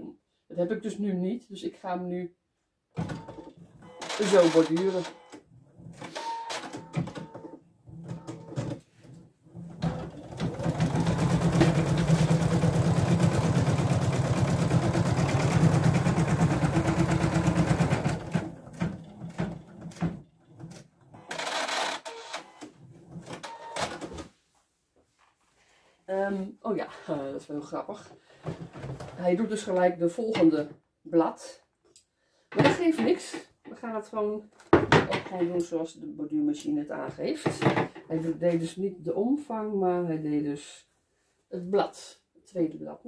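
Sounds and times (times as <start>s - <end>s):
embroidery machine stitching: 9.6s - 20.0s, 20.6s - 22.4s.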